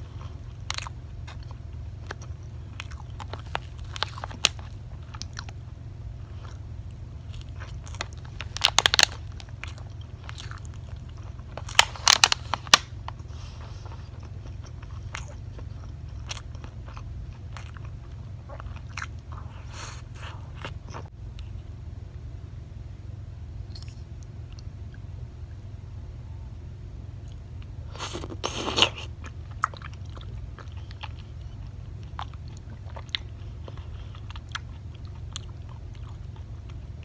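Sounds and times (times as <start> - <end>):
low steady hum: 0.0 - 37.0
mouth chewing sounds: 12.7 - 21.6, 27.2 - 37.0.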